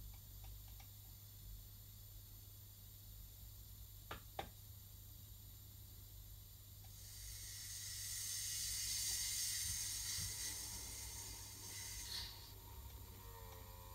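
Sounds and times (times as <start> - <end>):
steam hiss: 6.9 - 13.9.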